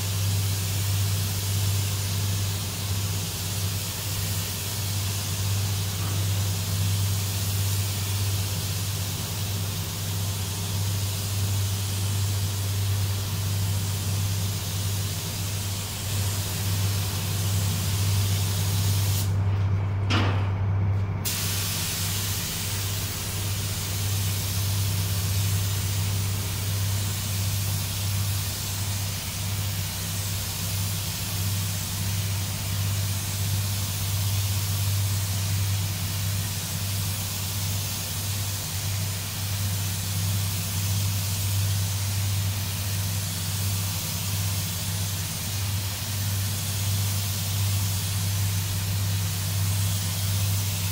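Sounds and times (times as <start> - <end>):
spray gun hissing: 0.0 - 19.3, 21.2 - 50.9
fans humming: 5.4 - 43.8.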